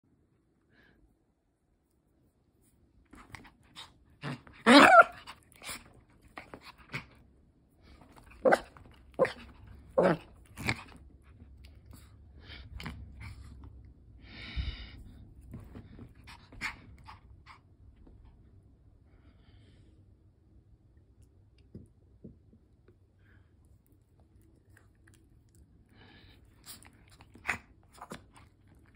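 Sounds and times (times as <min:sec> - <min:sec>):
small dog yapping: 0:04.2 - 0:05.8, 0:08.3 - 0:10.8.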